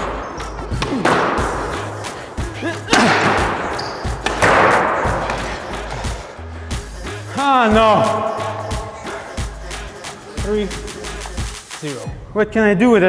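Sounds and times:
background music with bass: 0.0s - 13.0s
squash ball smacks: 2.9s - 5.4s.

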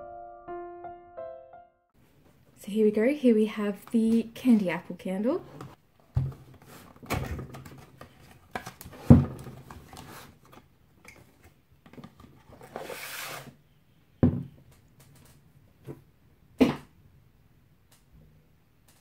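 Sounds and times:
cardboard box knocks and thumps: 6.1s - 6.5s
jar sliding from box: 12.6s - 13.5s.

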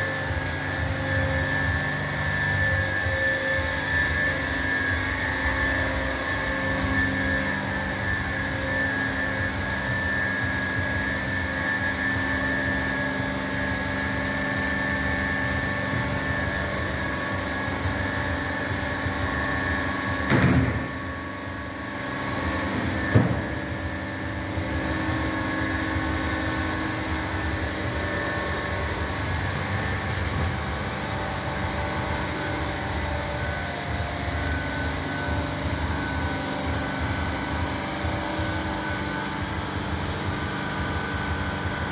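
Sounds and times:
ice machine humming: 0.0s - 41.9s
loud knock: 20.3s - 20.9s.

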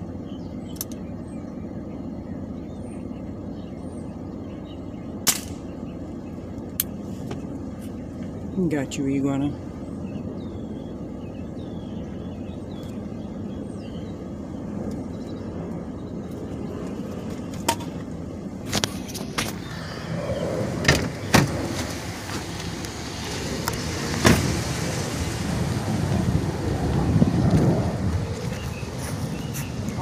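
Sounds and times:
wind noise on microphone: 14.6s - 30.0s
car door opening and shutting: 20.8s - 22.4s, 24.2s - 24.5s.

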